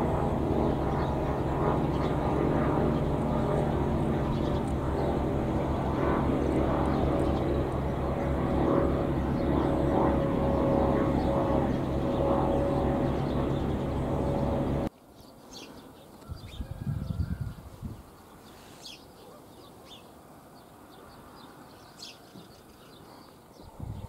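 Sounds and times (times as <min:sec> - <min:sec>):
engine drone: 0:00.0 - 0:14.9
small birds chirping: 0:00.3 - 0:24.0.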